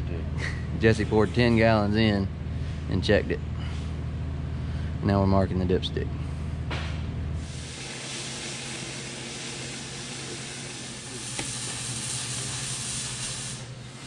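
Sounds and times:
low hum: 0.0 - 7.7
steady hiss: 7.4 - 13.8.

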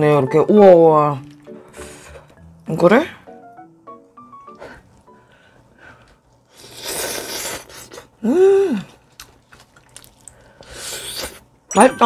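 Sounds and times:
noisy mouth eating sounds: 6.5 - 11.5
person humming mmm: 6.6 - 9.0.

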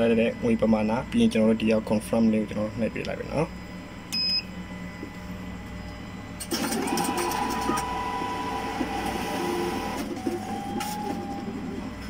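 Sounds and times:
receipt printer whirring: 6.4 - 12.0.

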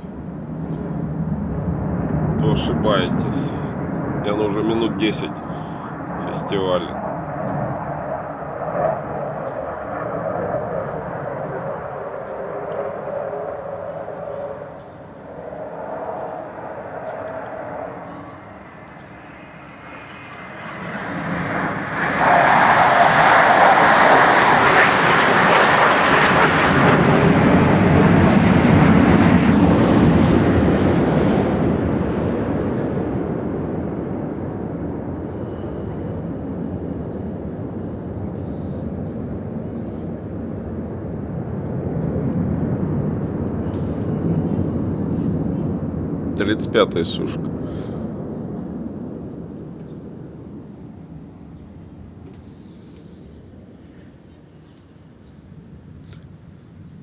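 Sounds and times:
fighter jet roaring overhead: 0.0 - 56.0.

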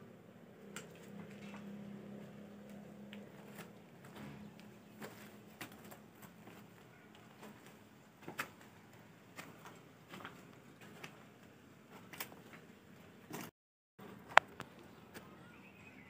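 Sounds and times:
footsteps crunching on rubble: 3.2 - 13.5.

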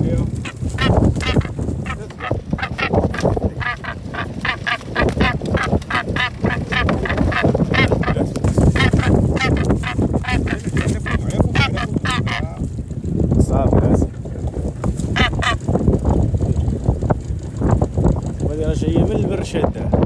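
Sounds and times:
seabird honking calls: 0.0 - 12.7, 14.7 - 15.8
steady low rumble: 0.0 - 20.0.

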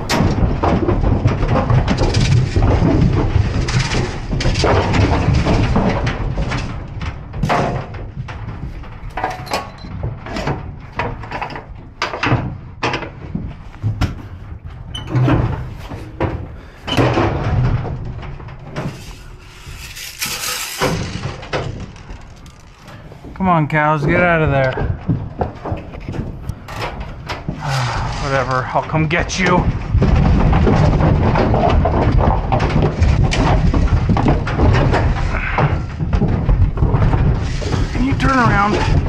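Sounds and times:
trailer gates clanking and rattling: 0.0 - 39.0
rattle paddle shaken: 18.6 - 23.4.

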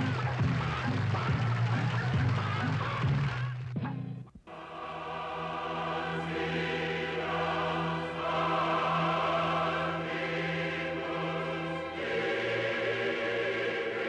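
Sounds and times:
choir singing held chords: 4.4 - 14.0.

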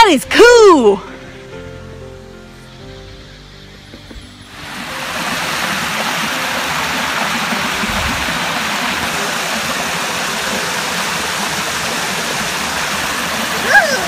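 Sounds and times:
waterfall rushing: 4.5 - 14.0.

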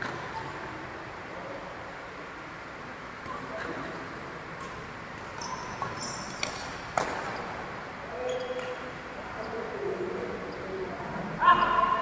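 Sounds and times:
shoes squeaking on court floor: 3.3 - 9.0
racket hitting shuttlecock: 4.6 - 7.4.

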